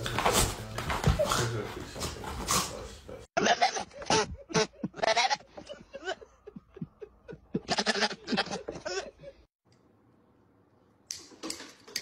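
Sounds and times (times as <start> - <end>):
goat bleating: 3.4 - 5.6, 7.6 - 9.0.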